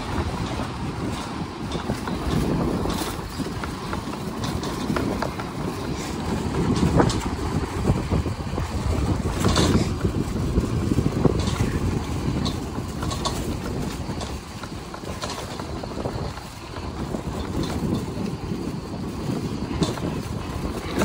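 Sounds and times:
motor scooter engine: 0.0 - 21.0
road noise: 0.0 - 21.0.

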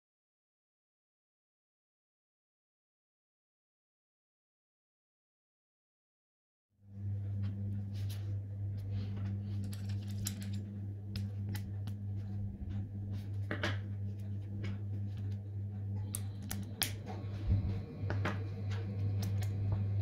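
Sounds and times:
steady low hum: 6.8 - 20.0.

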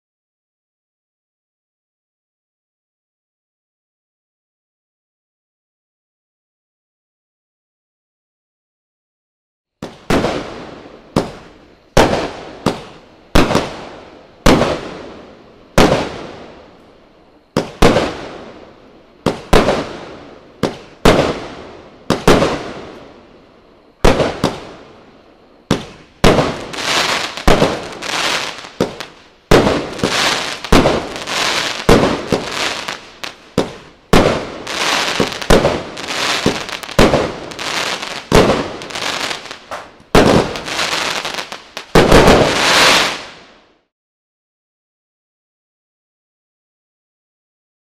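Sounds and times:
firework bangs echoing: 9.8 - 16.6, 17.5 - 18.6, 19.2 - 23.1, 24.0 - 24.8, 25.6 - 43.4.

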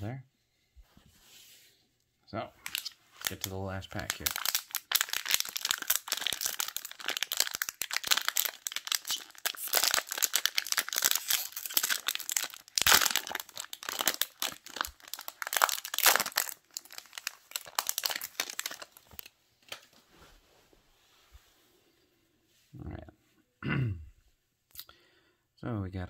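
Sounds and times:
plastic wrapper crinkling: 2.6 - 20.0.

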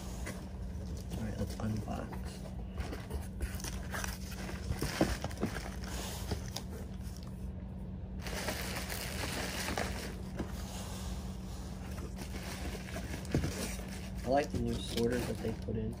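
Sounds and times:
steady low hum: 0.0 - 16.0
cardboard box being opened: 2.8 - 6.7
plastic air pillows crinkling: 8.2 - 10.5, 11.9 - 16.0.

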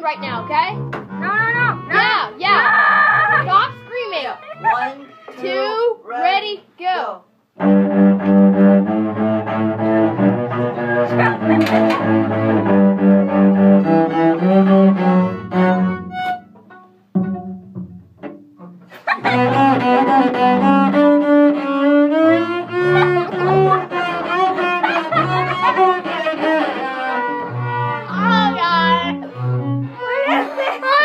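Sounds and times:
cello bowed notes: 0.0 - 5.8, 7.6 - 31.0
string ensemble playing: 0.0 - 5.8, 7.6 - 31.0.

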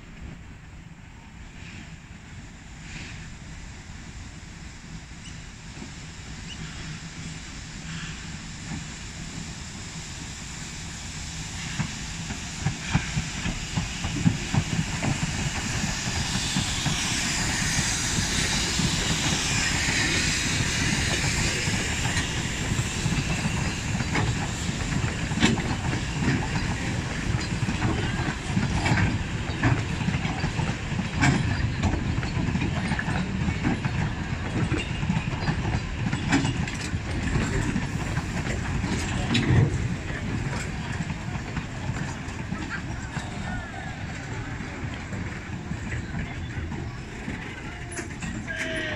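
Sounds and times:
steam locomotive hissing: 0.8 - 48.9
wheels clicking over rail joints: 23.1 - 48.9.

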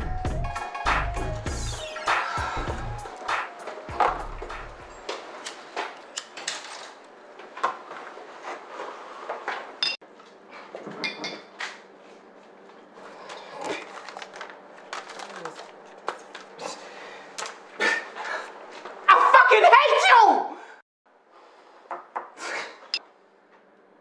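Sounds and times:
dishes clinking: 10.9 - 11.5.

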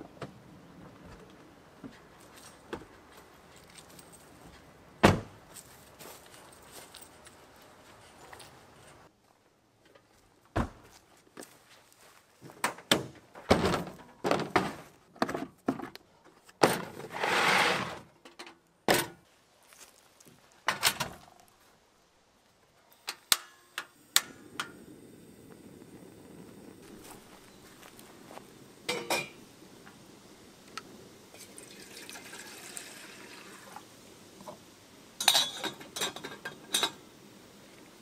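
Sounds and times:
handling knocks and clunks: 9.9 - 11.0, 12.4 - 16.0, 16.6 - 17.2
gas hiss: 23.2 - 38.0.

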